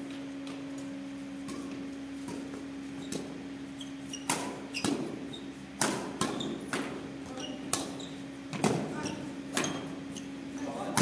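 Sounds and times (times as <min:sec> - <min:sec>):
steady low hum: 0:00.0 - 0:11.0
racket hitting shuttlecock: 0:01.4 - 0:03.3, 0:04.1 - 0:05.2, 0:05.8 - 0:07.0, 0:07.6 - 0:08.9.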